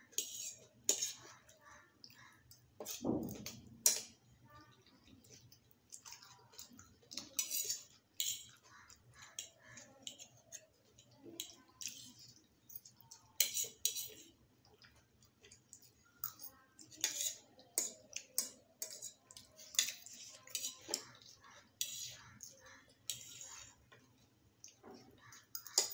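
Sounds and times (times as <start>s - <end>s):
forks scraping and clinking plates: 0.1s - 1.4s, 7.2s - 8.6s, 11.4s - 14.3s, 16.2s - 22.3s, 23.0s - 23.8s, 25.2s - 25.9s.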